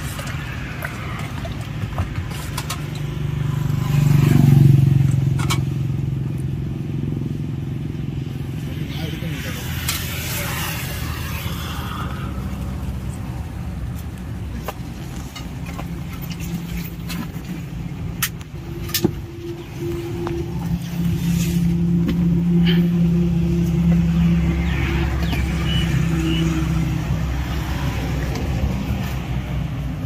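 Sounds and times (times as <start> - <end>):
traffic engine hum: 0.0 - 30.0.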